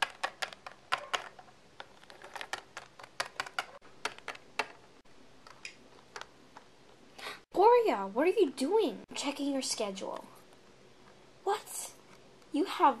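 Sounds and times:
plastic toys clicking on table: 0.0s - 4.8s.

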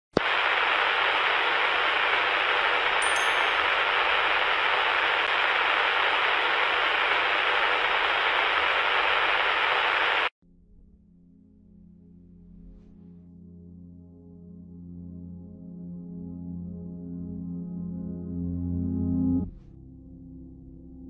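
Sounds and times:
loud static hiss: 0.1s - 10.3s
high sparkling chime: 3.0s - 4.0s.

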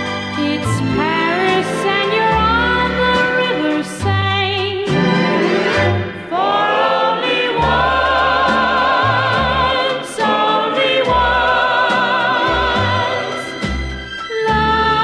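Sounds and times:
pop record playing: 4.9s - 14.0s.

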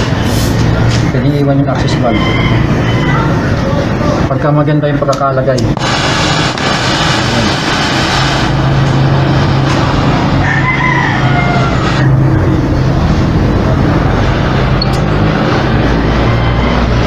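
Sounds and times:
torch flame hissing: 0.0s - 1.0s, 5.6s - 16.2s
distant rooster crowing: 1.6s - 4.2s, 10.2s - 12.5s, 15.3s - 17.0s.

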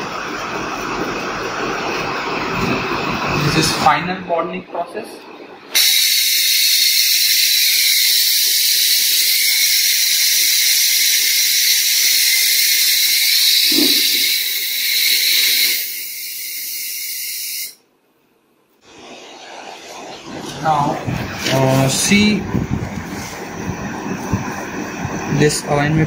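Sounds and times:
compressed air hissing: 5.8s - 17.8s.

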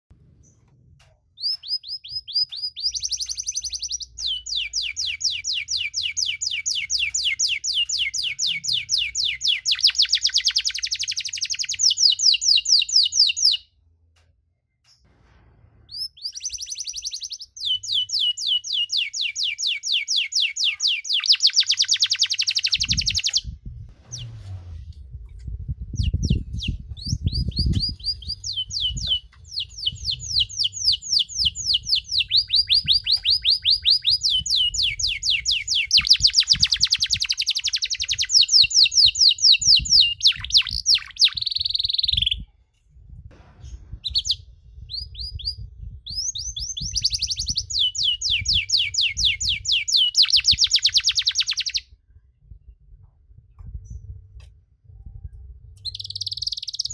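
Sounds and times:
canary singing trills: 1.4s - 13.7s, 15.9s - 23.5s, 25.9s - 42.4s, 44.0s - 51.9s, 55.8s - 56.9s
low rumble: 15.1s - 16.6s, 23.4s - 33.4s, 42.4s - 47.7s, 51.9s - 56.2s.

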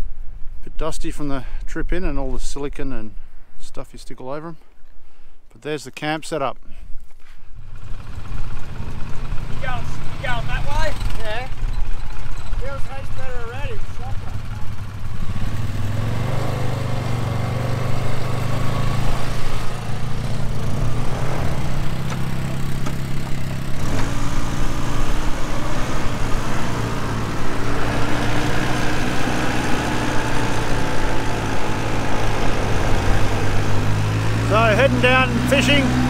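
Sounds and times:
quad bike engine running: 7.6s - 36.0s.

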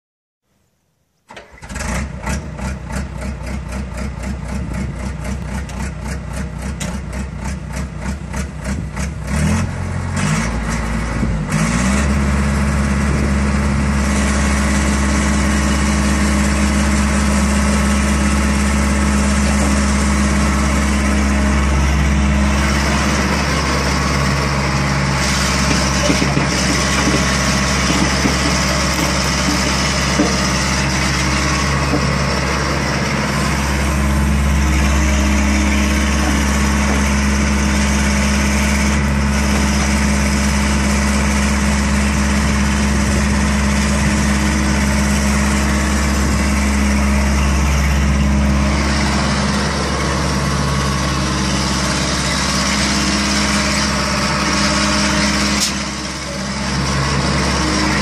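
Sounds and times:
diesel engine starter cranking: 1.3s - 3.0s
diesel engine running: 1.4s - 58.0s
hydraulic boom moving: 16.9s - 40.8s.

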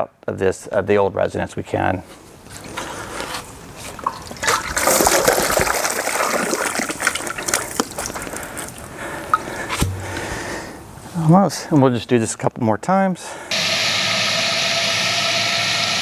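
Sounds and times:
water pouring into cardboard box: 4.0s - 8.9s.

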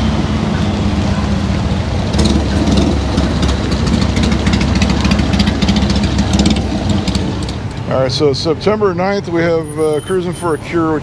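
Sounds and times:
motorcycle passing: 0.0s - 8.1s
vehicle engines idling: 0.0s - 11.0s.

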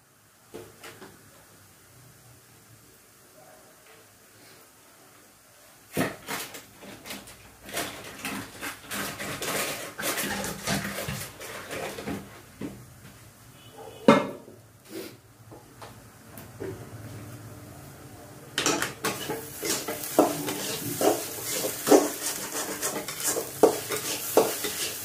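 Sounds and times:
utensils and dishes clinking: 18.6s - 25.0s.

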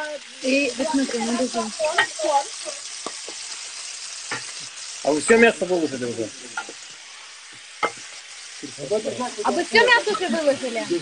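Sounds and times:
meat sizzling in hot oil: 0.0s - 11.0s
wooden spoon knocking on pan: 1.8s - 2.4s, 4.3s - 4.6s, 6.6s - 6.8s, 7.8s - 8.8s.

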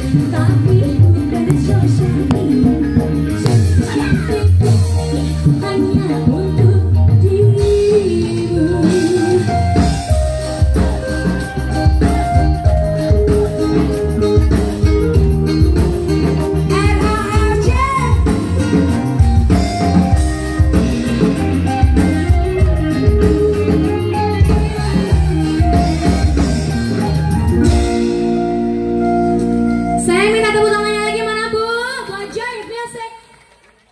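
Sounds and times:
woman singing: 0.0s - 11.2s, 16.5s - 18.7s, 21.2s - 26.6s
dangdut band playing: 0.0s - 33.0s.

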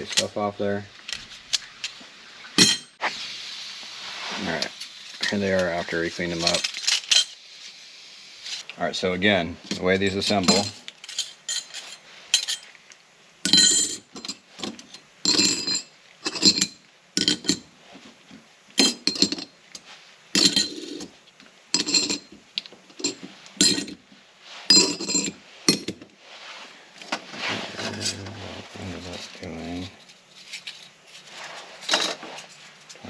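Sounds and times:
metal plates clinking: 2.6s - 3.0s, 9.7s - 12.7s, 13.5s - 14.4s, 20.4s - 21.1s, 21.8s - 22.3s, 23.0s - 24.0s, 24.7s - 26.0s
clothing rustling: 26.2s - 29.4s, 30.2s - 33.0s.

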